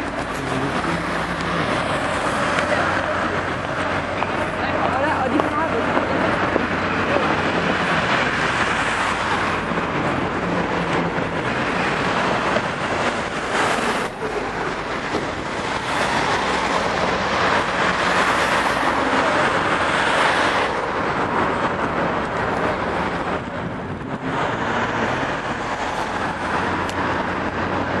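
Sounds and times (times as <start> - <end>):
passing vehicles: 0.0 - 28.0.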